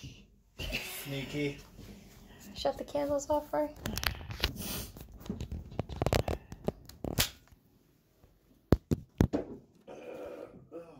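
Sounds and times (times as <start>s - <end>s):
device handling rustling: 3.8s - 7.6s.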